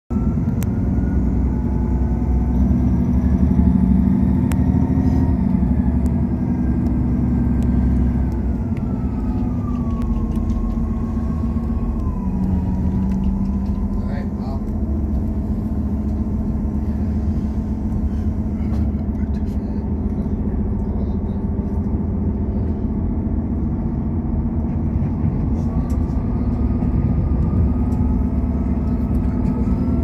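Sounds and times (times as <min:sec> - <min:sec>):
low hum: 0:00.1 - 0:30.0
train running rumble: 0:00.1 - 0:30.0.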